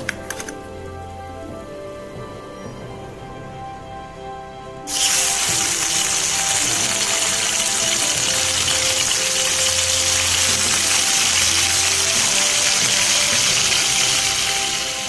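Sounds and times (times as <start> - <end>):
soft background music: 0.0 - 15.0
fish sizzling in hot oil: 4.9 - 15.0.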